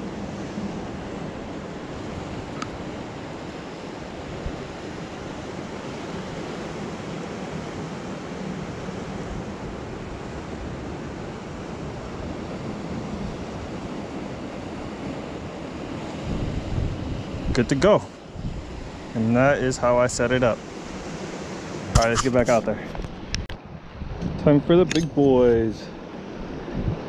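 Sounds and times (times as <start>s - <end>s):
ocean surf on rocks: 0.0s - 27.0s
wind buffeting microphone: 14.9s - 27.0s.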